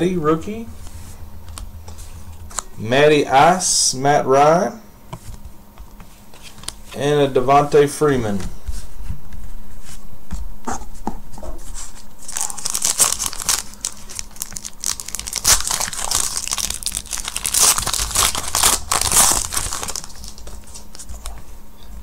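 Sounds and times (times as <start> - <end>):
wrapper crinkling: 12.2 - 21.3
cards and wrapper clicks: 12.3 - 20.9.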